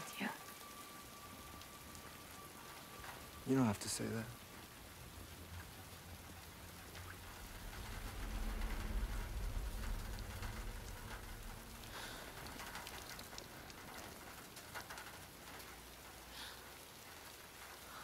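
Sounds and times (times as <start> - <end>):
close raindrops: 0.0 - 18.0
rain on hard surfaces: 0.0 - 18.0
deep low rumble: 4.6 - 14.3.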